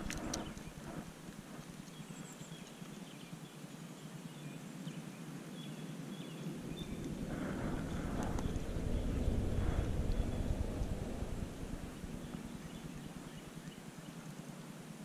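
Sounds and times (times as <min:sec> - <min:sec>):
sharp clicks: 0:00.0 - 0:02.0
wind buffeting microphone: 0:00.0 - 0:02.2, 0:06.4 - 0:14.0.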